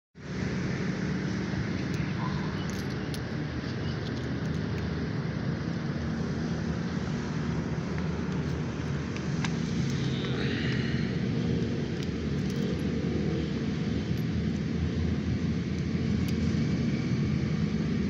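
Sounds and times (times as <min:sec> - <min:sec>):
low engine rumble with hum: 0:00.2 - 0:18.0
coins clinking in hand: 0:01.8 - 0:04.7, 0:12.0 - 0:13.0.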